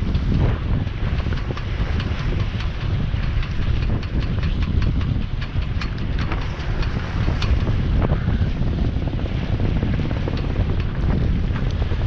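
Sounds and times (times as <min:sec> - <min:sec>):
water rushing along hull: 0:00.0 - 0:12.0
wind buffeting microphone: 0:00.0 - 0:12.0.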